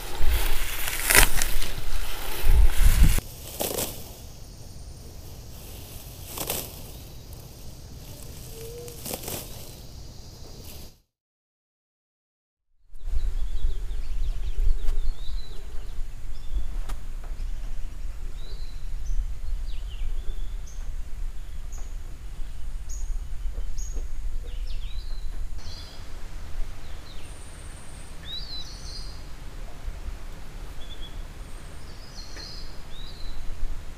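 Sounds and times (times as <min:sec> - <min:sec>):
wind rumble on microphone: 0:00.0 - 0:03.2, 0:12.9 - 0:33.9
birds chirping: 0:00.0 - 0:11.0, 0:13.0 - 0:33.5.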